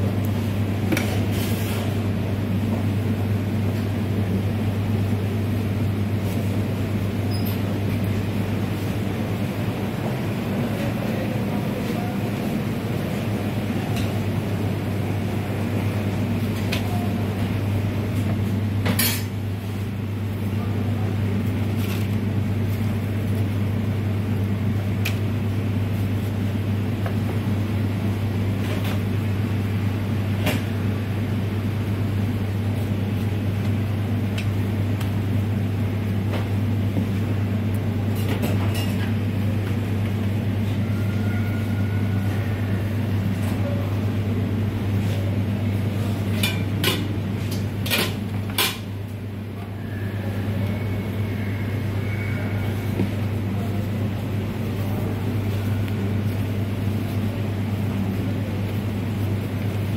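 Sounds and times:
kitchen equipment hum: 0.0s - 59.9s.

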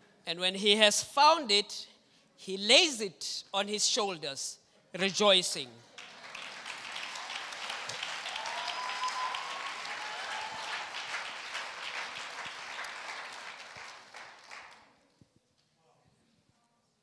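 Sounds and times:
congregation applauding: 5.9s - 15.0s.

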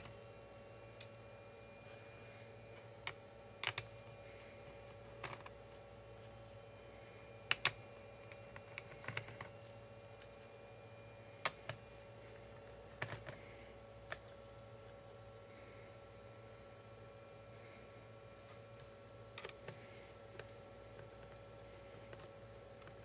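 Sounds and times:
faint steady hum: 0.0s - 23.0s
laptop parts clicking: 3.0s - 3.9s, 7.4s - 10.3s, 12.9s - 13.4s.

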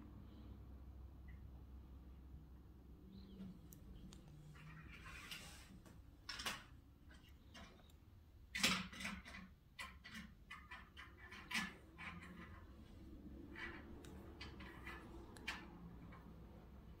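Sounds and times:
plastic toy cars clicking: 6.3s - 16.5s.

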